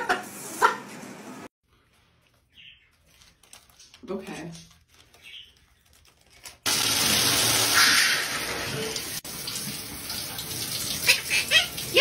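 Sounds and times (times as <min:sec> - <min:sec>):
shower water running: 0:00.0 - 0:01.5, 0:06.7 - 0:12.0.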